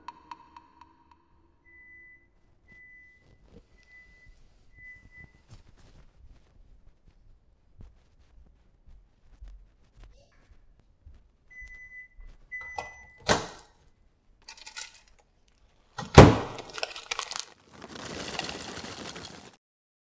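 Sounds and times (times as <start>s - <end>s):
electronic appliance beeps: 1.6s - 5.5s, 11.5s - 13.3s.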